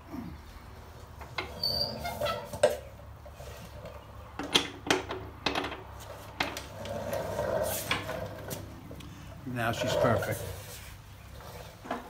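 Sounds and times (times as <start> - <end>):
metal rasping: 9.6 - 10.8.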